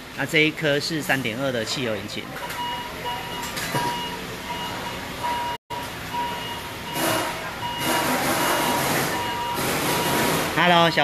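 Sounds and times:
electronic beeper two-pitch beeps: 2.6 - 10.4.

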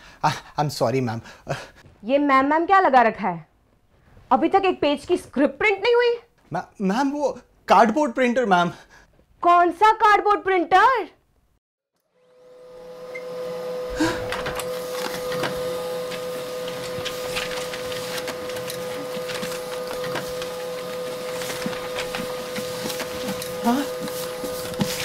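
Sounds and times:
printer motor whine and clatter: 12.2 - 25.0
paper rustling: 14.4 - 25.0.

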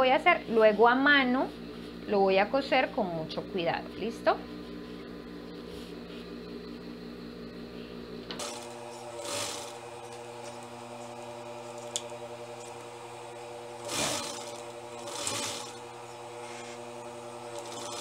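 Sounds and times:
sewing machine humming: 8.3 - 18.0.

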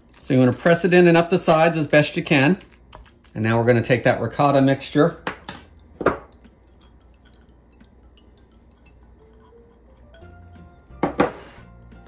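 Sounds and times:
glass bowl clinking on counter: 5.2 - 11.5
soft background music: 8.1 - 12.0.

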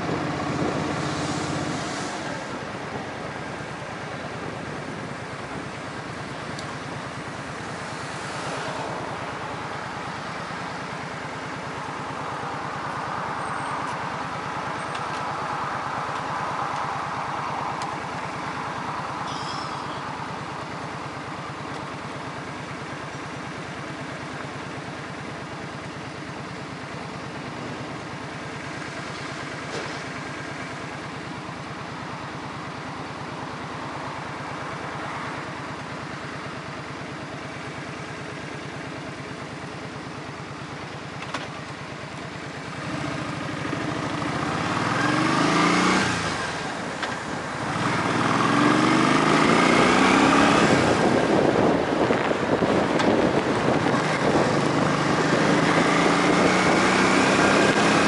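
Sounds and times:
rushing noise: 0.0 - 2.7
engine running steadily: 0.0 - 58.0.

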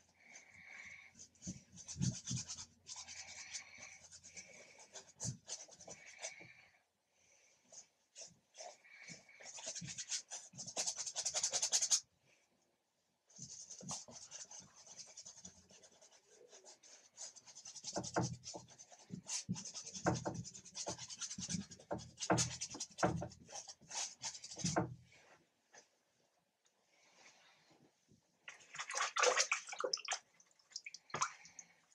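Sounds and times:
paintbrush scrubbing on canvas: 0.0 - 6.6, 7.7 - 12.0, 13.3 - 25.4.

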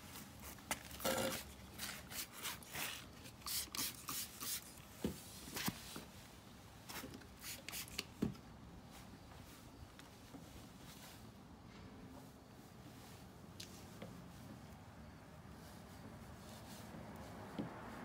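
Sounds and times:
spray bottle spritzing: 2.0 - 4.8, 7.4 - 8.1.

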